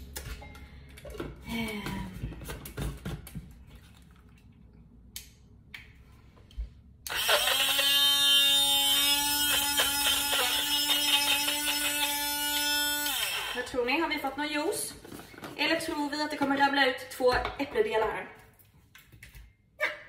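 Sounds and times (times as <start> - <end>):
blender motor whine: 7.1 - 13.9.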